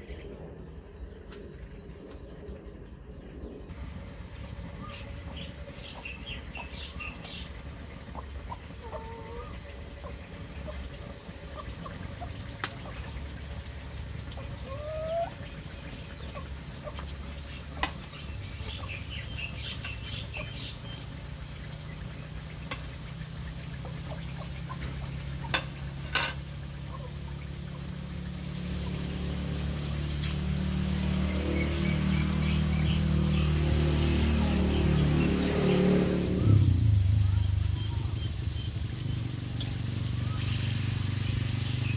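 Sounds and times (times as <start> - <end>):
steady low hum: 0.0 - 14.7
engine running: 3.7 - 41.9
chickens clucking: 3.8 - 35.5.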